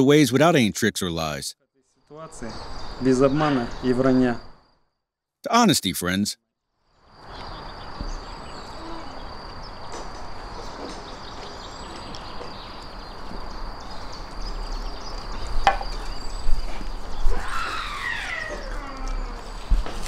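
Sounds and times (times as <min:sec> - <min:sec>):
outdoor background hiss: 0:00.0 - 0:20.0.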